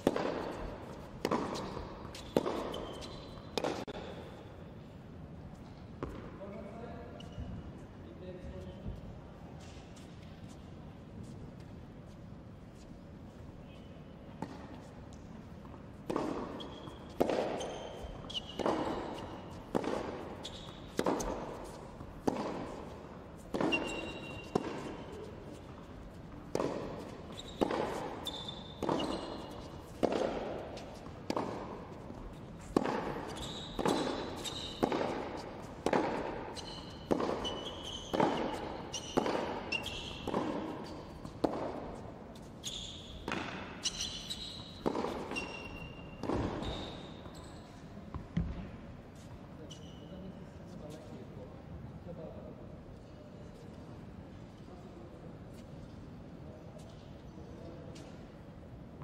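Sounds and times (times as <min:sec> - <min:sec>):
tennis balls struck by rackets: 0:00.0 - 0:04.4, 0:06.0 - 0:06.3, 0:14.4 - 0:42.5, 0:43.1 - 0:47.0
shoe squeaks: 0:00.4 - 0:03.6, 0:06.5 - 0:07.6, 0:16.1 - 0:25.8, 0:26.7 - 0:30.0, 0:31.9 - 0:48.0, 0:49.5 - 0:50.4.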